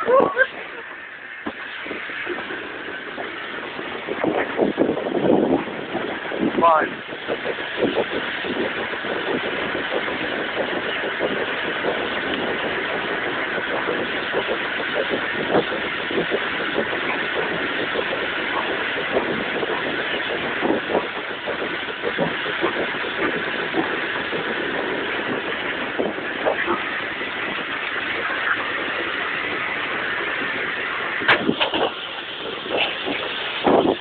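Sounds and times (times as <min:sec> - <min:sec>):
steam locomotive running: 0:00.0 - 0:34.0
locomotive knocks and clatters: 0:31.2 - 0:34.0.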